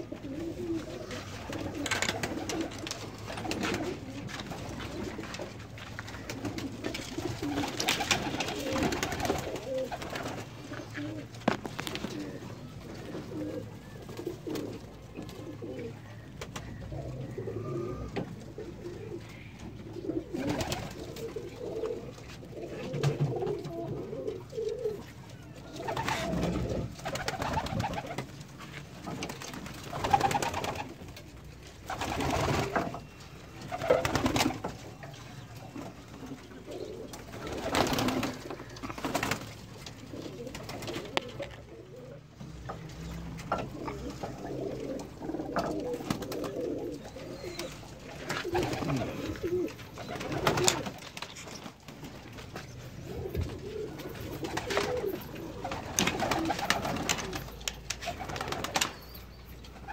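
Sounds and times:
pigeons cooing: 0:00.0 - 0:59.9.

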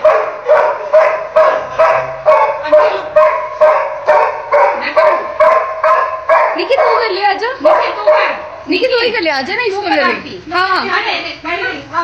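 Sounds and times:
dog barking rapidly: 0:00.0 - 0:08.7.

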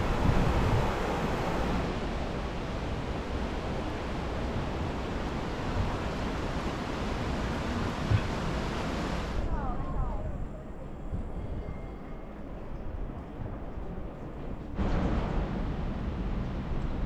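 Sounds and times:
river rushing over rocks: 0:00.0 - 0:02.0.

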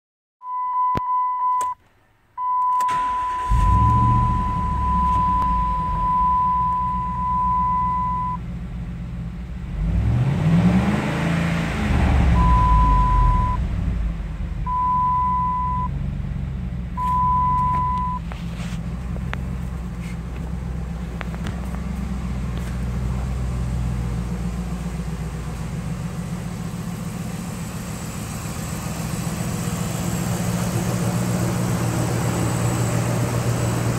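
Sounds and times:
dashboard warning chime: 0:00.4 - 0:01.8, 0:02.4 - 0:08.4, 0:12.4 - 0:13.6, 0:14.7 - 0:15.9, 0:17.0 - 0:18.2
truck engine starting and idling: 0:01.1 - 0:33.9.

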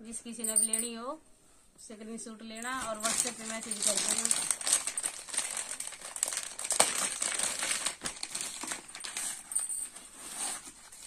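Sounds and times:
fabric and plastic rustling: 0:02.5 - 0:11.0.

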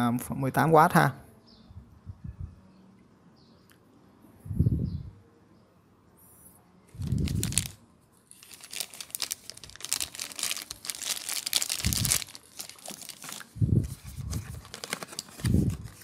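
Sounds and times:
plastic bag crinkling: 0:07.0 - 0:16.0.

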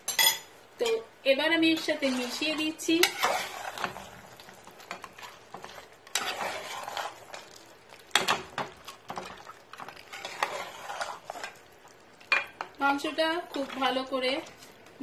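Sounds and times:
spatula scraping metal pot: 0:01.7 - 0:04.2, 0:04.8 - 0:11.6.

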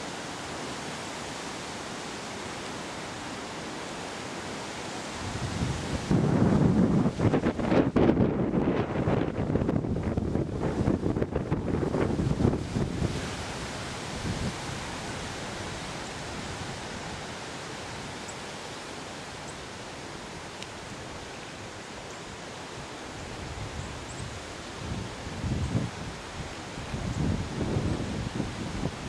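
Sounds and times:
wind buffeting microphone: 0:05.2 - 0:14.9, 0:23.4 - 0:29.0.

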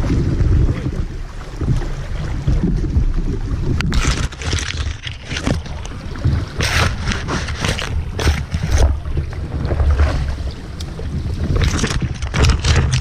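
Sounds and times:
river water: 0:00.0 - 0:13.0
wind rumble on microphone: 0:00.0 - 0:13.0
leaves rustling against camera: 0:03.9 - 0:09.0.

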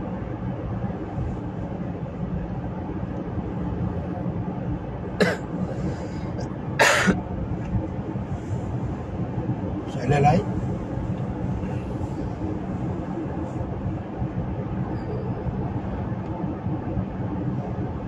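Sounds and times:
low background rumble: 0:00.0 - 0:18.0
person coughing: 0:05.2 - 0:05.4, 0:06.8 - 0:07.2.

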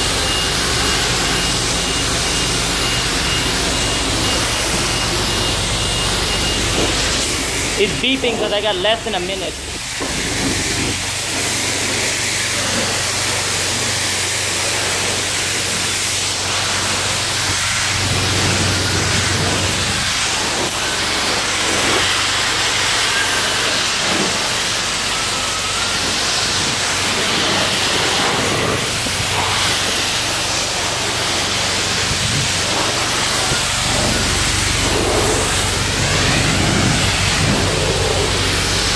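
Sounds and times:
pressure washer spraying water: 0:00.0 - 0:38.9
low hum: 0:24.8 - 0:38.9.

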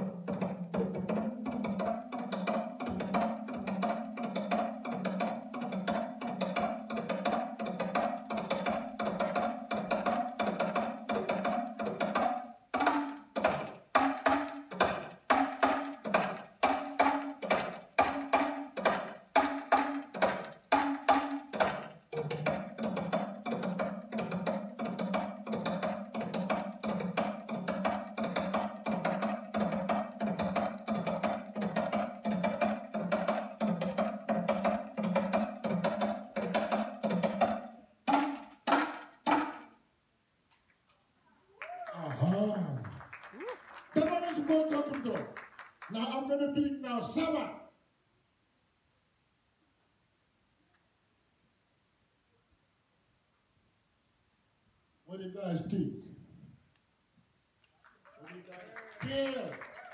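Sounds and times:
talking drum played with stick: 0:00.0 - 0:39.8.

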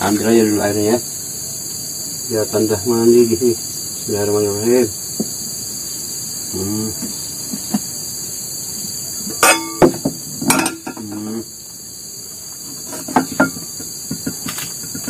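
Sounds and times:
forest insects chirring: 0:00.0 - 0:15.0
sharp knocks and clanks: 0:09.3 - 0:11.4, 0:12.6 - 0:15.0.

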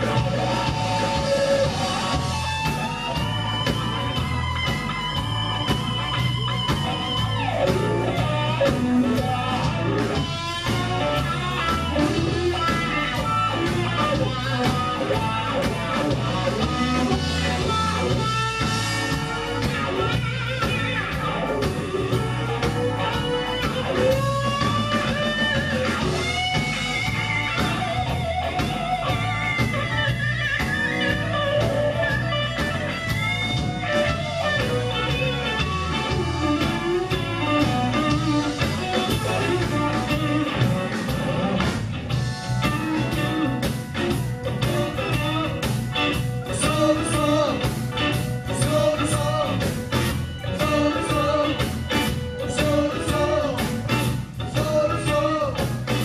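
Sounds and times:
bass guitar: 0:00.0 - 0:56.0
drums: 0:00.0 - 0:56.0
electric guitar lead: 0:00.0 - 0:56.0.

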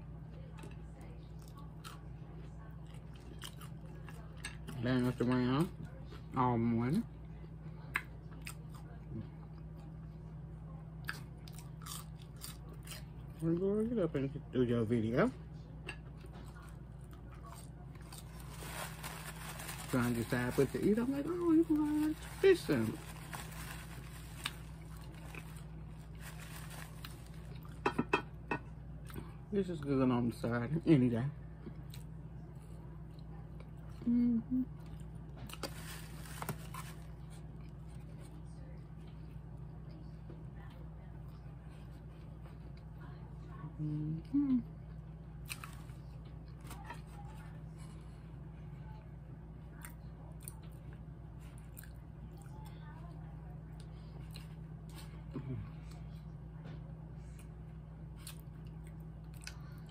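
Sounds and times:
steady low hum: 0:00.0 - 0:59.9
person chewing food: 0:01.4 - 0:02.1, 0:02.8 - 0:04.8, 0:11.0 - 0:13.5, 0:45.4 - 0:46.9, 0:53.8 - 0:56.3, 0:57.2 - 0:59.9.

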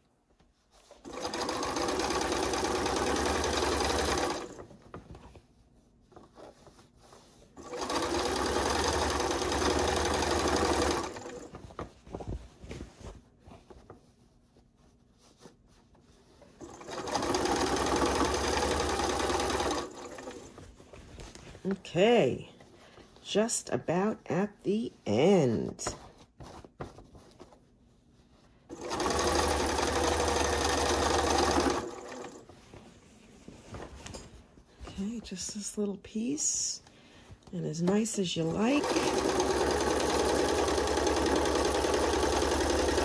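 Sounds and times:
sewing machine stitching: 0:01.0 - 0:04.7, 0:07.6 - 0:11.5, 0:16.6 - 0:20.6, 0:28.7 - 0:32.5, 0:38.4 - 0:43.0
fabric handling: 0:03.9 - 0:09.2, 0:11.0 - 0:23.4, 0:24.2 - 0:42.0.

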